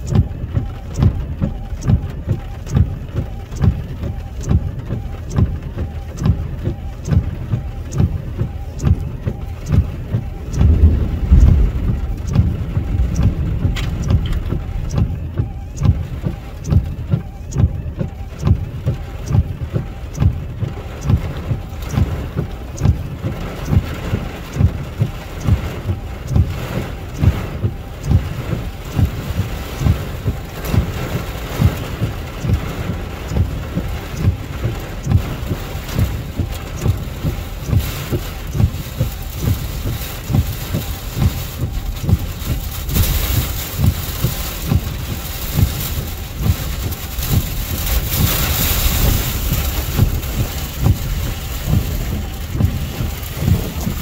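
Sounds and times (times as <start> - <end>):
rain on a car: 0.0 - 54.0
steady low thumps: 0.0 - 54.0
loud low rumble: 10.4 - 16.2.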